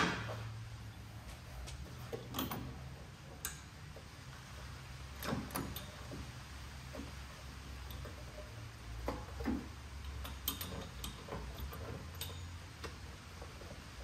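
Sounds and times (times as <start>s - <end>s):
low steady hum: 0.0s - 14.0s
metallic wrench clicks: 10.0s - 13.0s.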